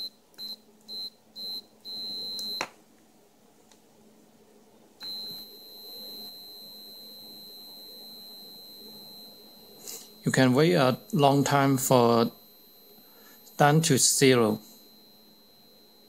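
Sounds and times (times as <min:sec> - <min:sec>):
continuity buzzer beeping: 0:05.0 - 0:16.0.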